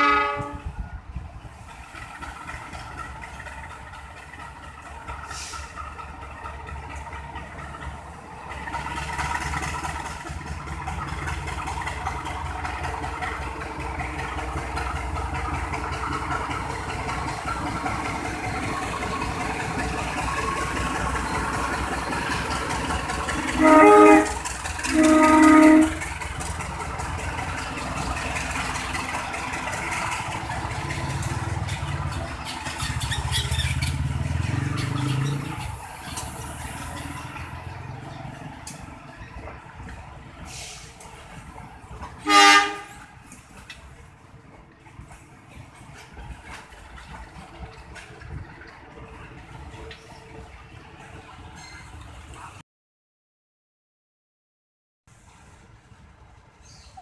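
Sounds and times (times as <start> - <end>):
train horn blasts: 0.0 - 0.7, 23.5 - 26.1, 42.2 - 43.2
locomotive engine running: 0.0 - 52.6
train rumbling over rails: 0.0 - 52.6, 55.1 - 57.0.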